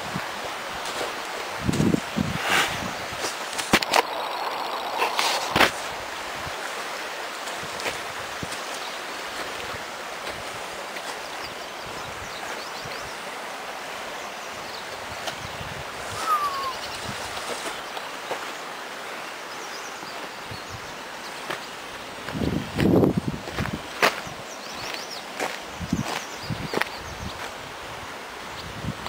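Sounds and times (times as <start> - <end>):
creek water rushing: 0.0 - 29.0
short falling whistle: 16.1 - 16.9.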